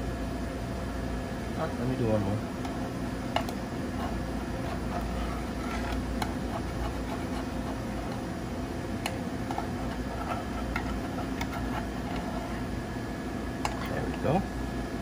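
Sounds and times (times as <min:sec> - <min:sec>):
low background hum: 0:00.0 - 0:15.0
utensil scraping metal muffin tin: 0:04.0 - 0:08.3, 0:09.4 - 0:12.7.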